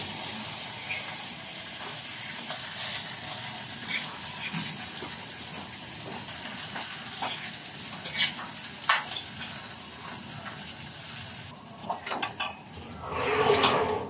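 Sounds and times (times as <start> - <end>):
food sizzling in a pan: 0.0 - 11.6.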